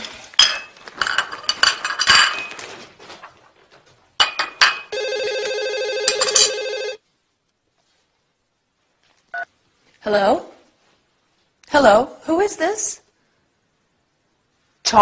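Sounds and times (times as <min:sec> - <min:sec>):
dishes clinking: 0:00.3 - 0:02.7, 0:04.2 - 0:04.9
telephone ringing electronic tone: 0:04.9 - 0:07.0.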